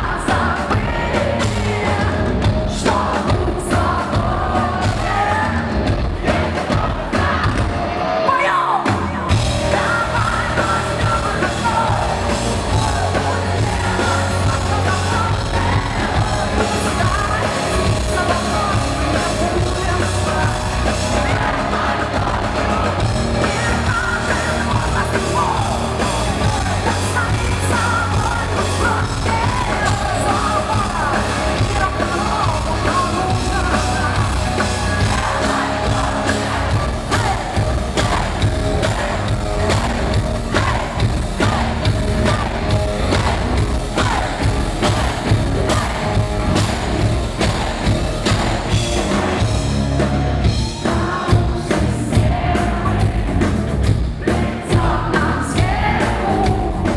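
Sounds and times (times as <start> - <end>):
bass guitar: 0.0 - 8.3, 8.9 - 56.9
drums: 0.0 - 56.9
electric guitars: 0.0 - 56.9
woman singing and yelling: 12.9 - 25.8, 26.4 - 39.2.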